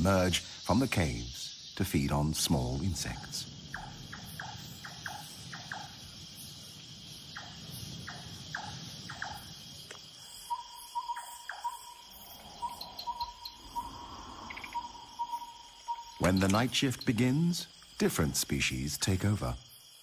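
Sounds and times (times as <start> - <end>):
cricket trill: 0.0 - 20.0
squeaky chirps: 10.4 - 17.7.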